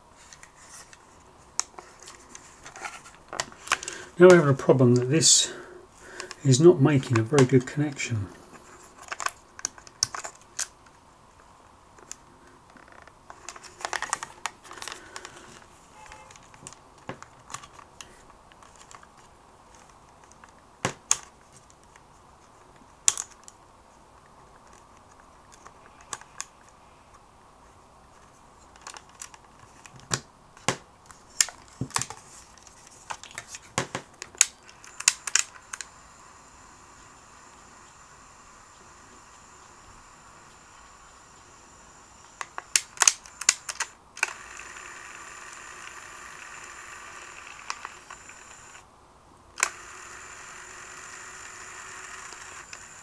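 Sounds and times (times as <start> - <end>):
plastic and metal clicks: 9.0 - 10.8, 28.7 - 30.8.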